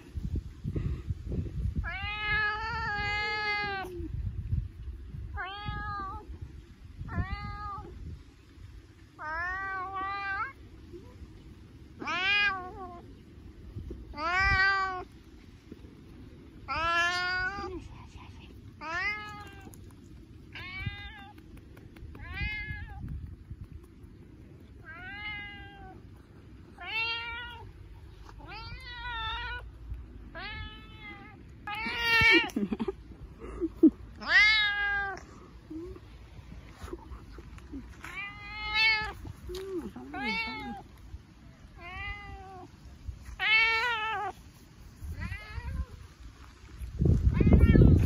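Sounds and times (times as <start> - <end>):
cat meowing: 38.0 - 40.8, 47.3 - 48.0.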